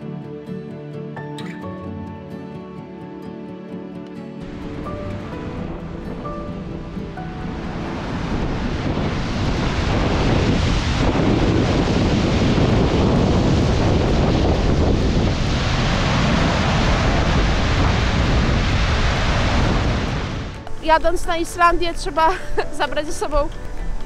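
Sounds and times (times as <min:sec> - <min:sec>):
waterfall roaring: 0:04.4 - 0:20.9
wind on microphone: 0:04.4 - 0:22.2.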